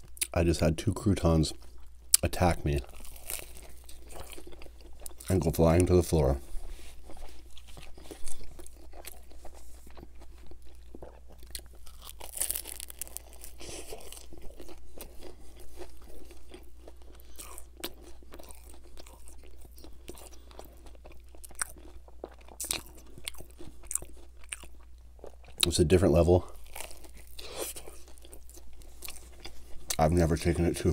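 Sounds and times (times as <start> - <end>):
crunchy chewing: 1.5 - 30.2.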